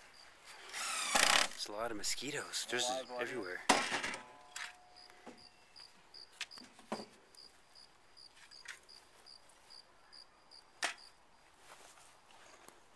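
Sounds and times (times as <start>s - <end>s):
cricket chirping: 0.0s - 1.4s, 2.3s - 6.7s, 7.3s - 11.4s.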